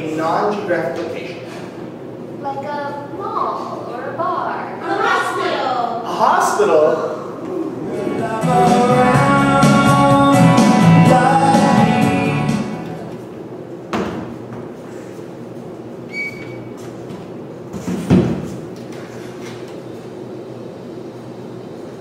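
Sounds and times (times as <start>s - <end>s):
music with singing: 7.8s - 13.1s.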